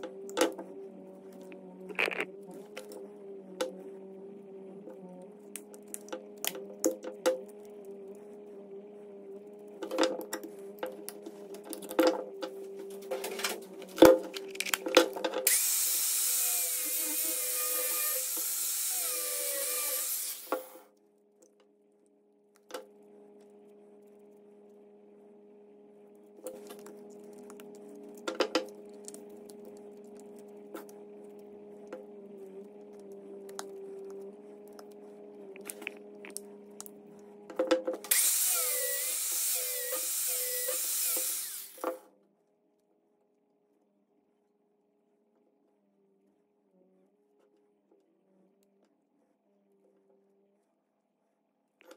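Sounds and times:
steady low hum: 0:00.0 - 0:15.2, 0:20.8 - 0:38.7.

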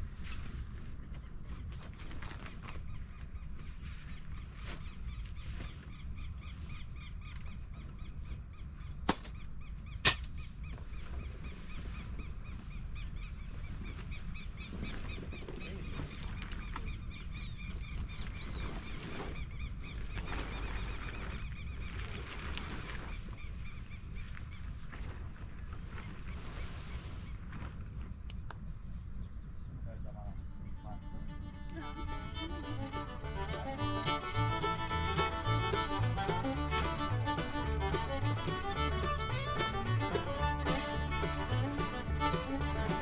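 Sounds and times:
birds calling: 0:02.8 - 0:24.7, 0:30.6 - 0:43.0.

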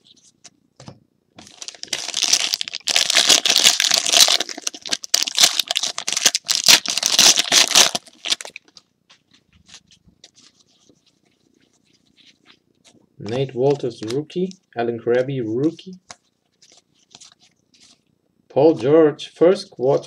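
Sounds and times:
foil wrapper crackling: 0:01.4 - 0:08.8.

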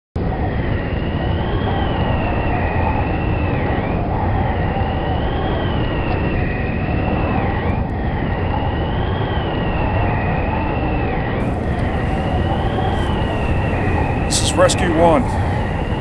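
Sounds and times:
storm wind howling: 0:11.4 - 0:16.0.

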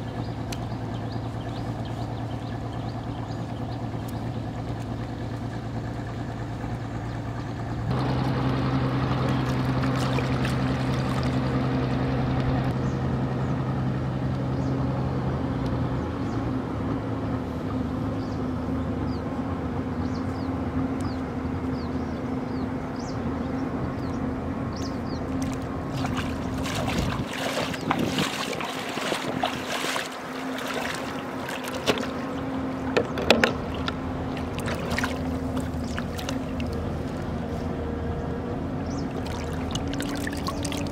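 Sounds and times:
motor droning: 0:00.0 - 0:13.5, 0:24.8 - 0:40.9
hands splashing in water: 0:09.3 - 0:11.5, 0:25.4 - 0:32.4, 0:33.7 - 0:37.2, 0:39.1 - 0:40.9.

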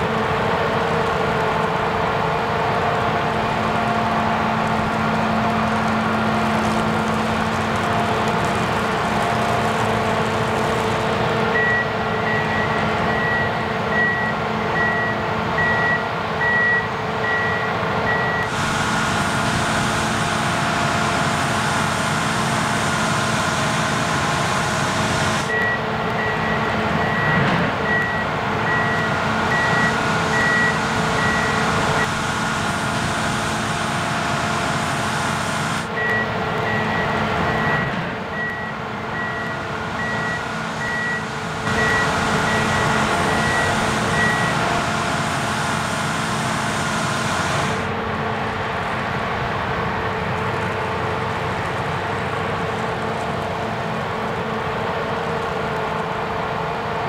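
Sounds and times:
combine harvester running: 0:00.0 - 0:57.0
high electronic warning beep: 0:24.6 - 0:32.1, 0:35.2 - 0:47.8.

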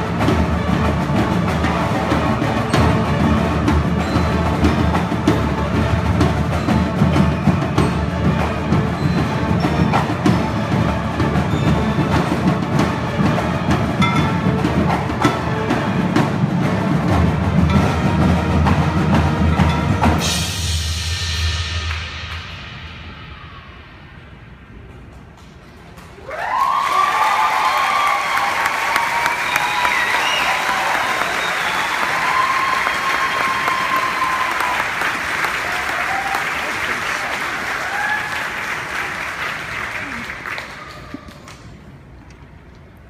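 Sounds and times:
marching band music: 0:00.0 - 0:25.8, 0:26.7 - 0:42.3
marimbas and mallet percussion: 0:00.2 - 0:20.8
cymbal crash: 0:19.4 - 0:25.1.

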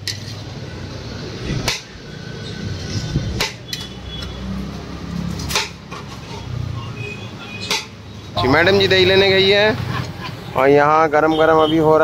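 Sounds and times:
low hum of street noise: 0:00.0 - 0:12.0
metal utensils knocking on pots: 0:07.6 - 0:08.0.

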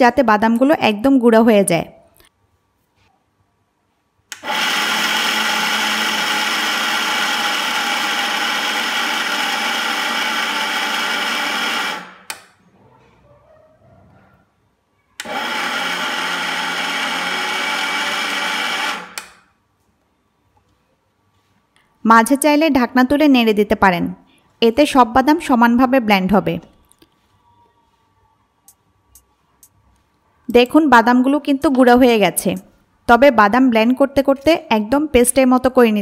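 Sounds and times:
mixer grinder grinding peanuts: 0:04.3 - 0:12.3, 0:15.2 - 0:19.2.

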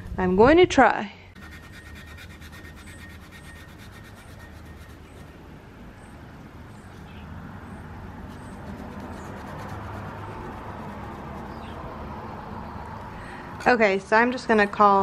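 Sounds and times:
cotton pad scrubbing: 0:01.4 - 0:05.4, 0:08.2 - 0:11.8
low engine hum: 0:04.6 - 0:13.4.

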